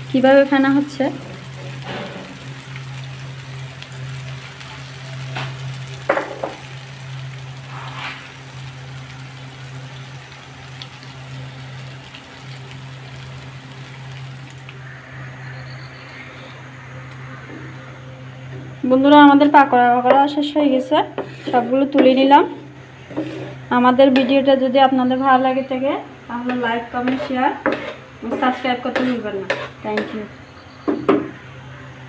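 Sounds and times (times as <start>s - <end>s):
food sizzling in oil: 0.0s - 31.3s
low hum: 12.6s - 21.0s.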